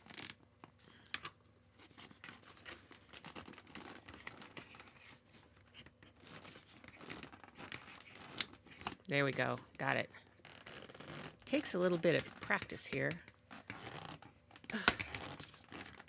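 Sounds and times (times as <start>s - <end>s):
fabric rustling: 10.4s - 12.5s.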